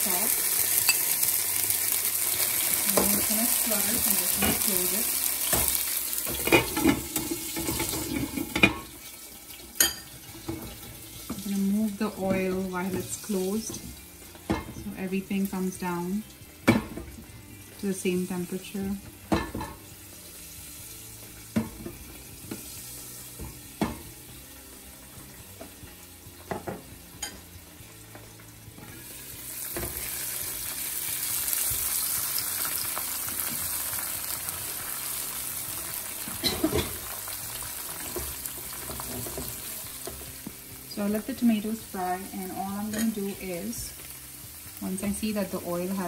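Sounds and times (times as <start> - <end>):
sauce sizzling in a pan: 0.0 - 46.0.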